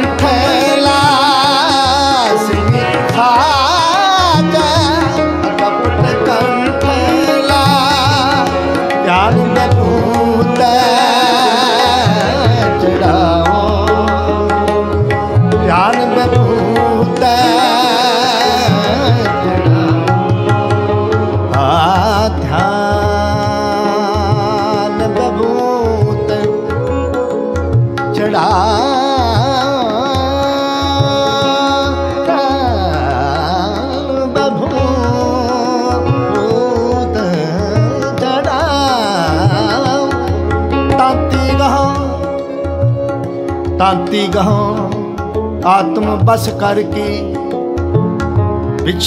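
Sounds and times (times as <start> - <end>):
harmonium held tones: 0.0 - 49.0
tabla playing: 0.0 - 49.0.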